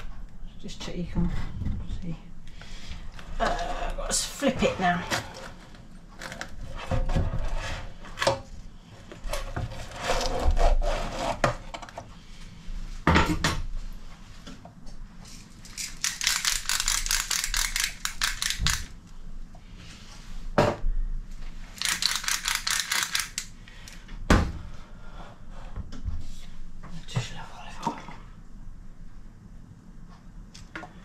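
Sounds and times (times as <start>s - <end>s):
pepper mill grinding: 15.3s - 19.0s, 21.7s - 23.5s.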